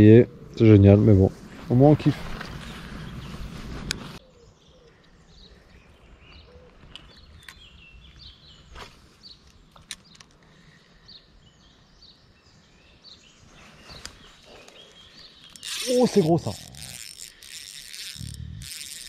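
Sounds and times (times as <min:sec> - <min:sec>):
small birds chirping: 0:01.8 - 0:19.0.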